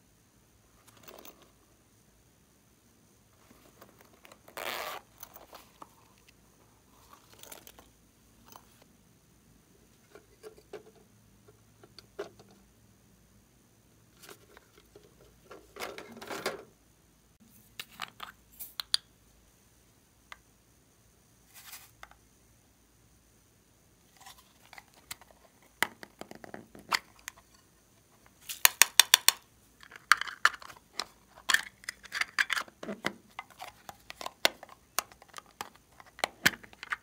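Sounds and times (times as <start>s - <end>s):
rustling: 3.3s - 8.9s, 21.4s - 22.1s.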